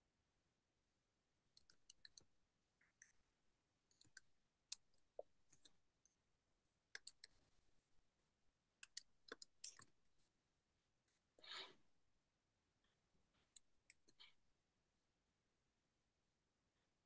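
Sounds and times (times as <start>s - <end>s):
small clicks and taps: 3.9s - 6.2s, 7.0s - 7.4s, 8.8s - 10.4s.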